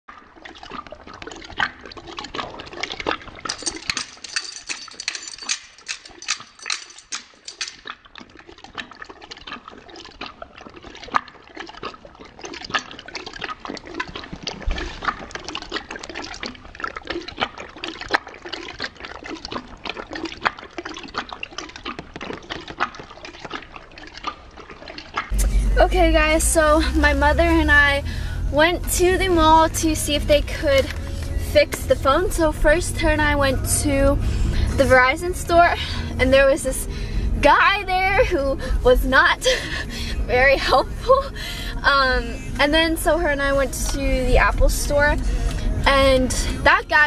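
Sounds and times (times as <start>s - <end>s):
dog lapping water from metal bowl: 0.1s - 25.4s.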